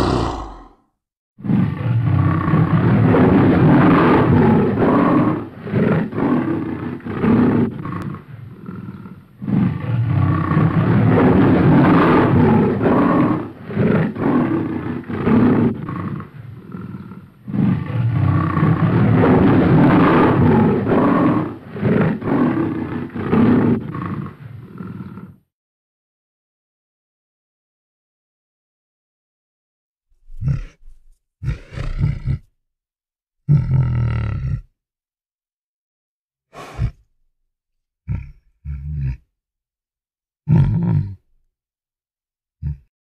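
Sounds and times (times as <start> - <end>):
lion roaring: 0.0 - 0.8, 1.4 - 25.4, 30.3 - 30.8, 31.4 - 32.4, 36.6 - 37.0, 40.5 - 41.2.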